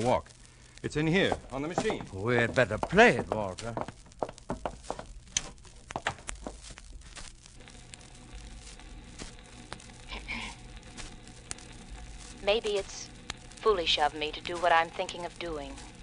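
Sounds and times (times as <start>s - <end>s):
record surface crackle: 0.0s - 16.0s
low hum: 4.7s - 16.0s.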